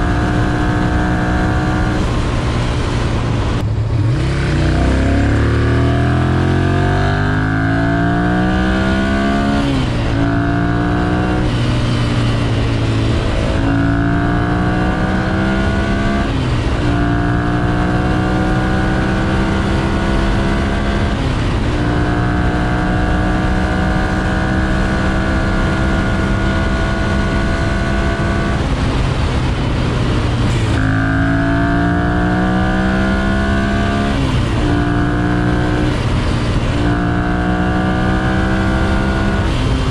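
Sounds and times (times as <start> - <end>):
motorcycle accelerating through gears: 0.0 - 39.9.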